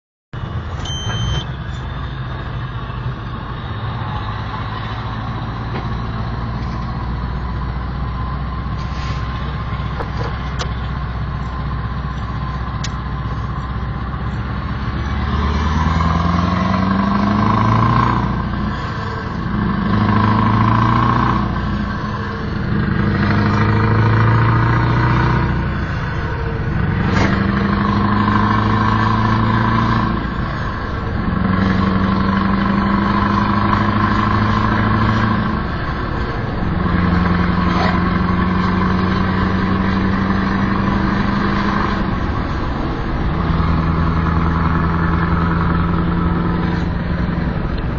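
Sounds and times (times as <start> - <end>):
diesel truck engine running: 0.4 - 47.9.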